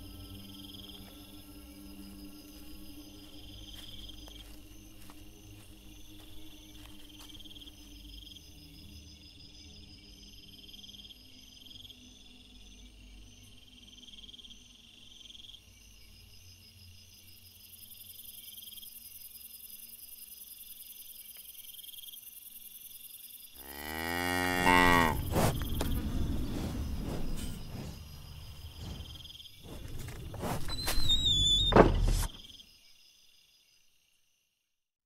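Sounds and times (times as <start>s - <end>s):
crickets chirping: 0.0s - 34.6s
deep animal bellow: 23.6s - 29.2s.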